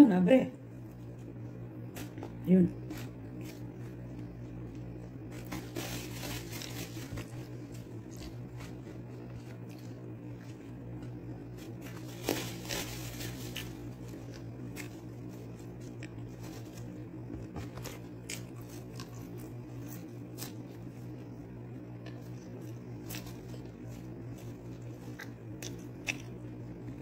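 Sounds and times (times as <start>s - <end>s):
steady low hum: 0.0s - 27.0s
paper packaging crinkling and tearing: 5.3s - 10.0s, 11.6s - 17.0s.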